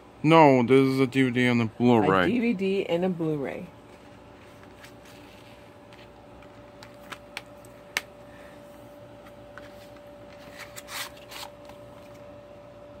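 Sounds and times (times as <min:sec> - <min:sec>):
plastic and cardboard scraping: 0:09.5 - 0:11.8.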